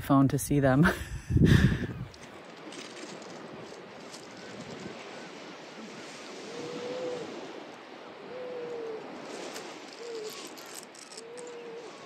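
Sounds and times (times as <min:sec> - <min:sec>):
waves washing onto pebbles: 0:02.2 - 0:12.0
seals moaning calls: 0:04.3 - 0:12.0.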